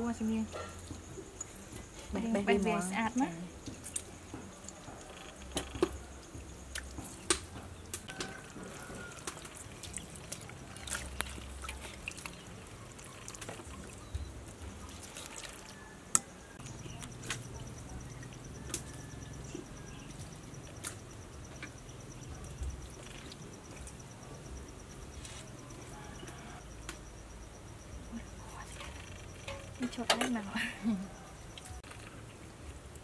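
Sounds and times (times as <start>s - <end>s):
water splashing and dripping: 0.1s - 24.2s
wet squelches: 3.0s - 26.7s.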